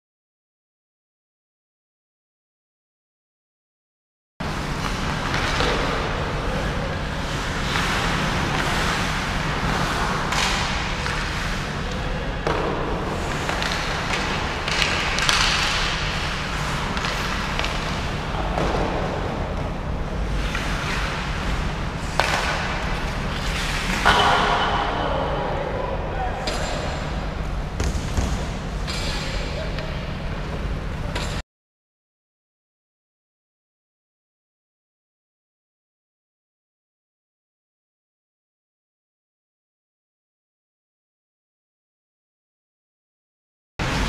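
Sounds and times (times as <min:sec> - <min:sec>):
steady low hum: 0:04.4 - 0:31.4
skates scraping on ice: 0:04.5 - 0:24.9
stick and puck clacks: 0:04.8 - 0:06.8, 0:07.4 - 0:19.7, 0:20.3 - 0:24.9.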